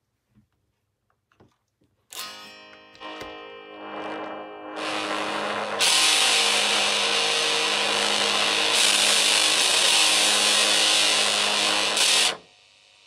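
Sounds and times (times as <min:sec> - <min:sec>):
steady hum: 0:03.0 - 0:13.0
loud guitar pedal hiss: 0:03.2 - 0:13.0.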